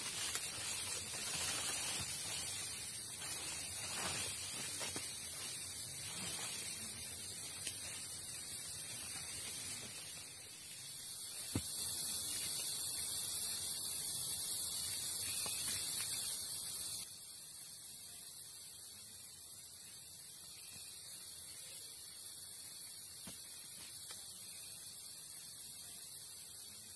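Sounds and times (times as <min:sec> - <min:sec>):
insects buzzing: 0:00.0 - 0:26.9.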